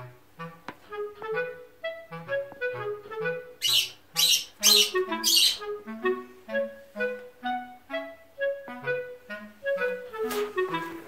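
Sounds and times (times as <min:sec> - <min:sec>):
light woodwind melody with bass: 0:00.0 - 0:11.0
harsh squawks: 0:03.6 - 0:05.7.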